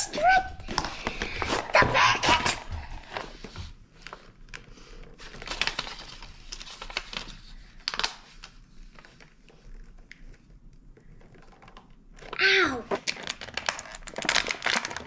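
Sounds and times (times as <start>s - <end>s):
cardboard tearing and crinkling: 12.9s - 15.0s.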